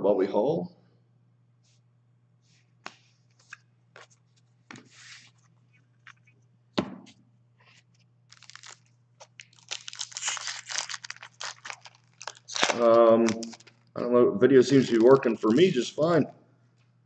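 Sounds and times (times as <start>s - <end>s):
thump on a table: 6.8s - 7.1s
foil pack tearing open: 8.3s - 13.9s, 14.8s - 15.8s.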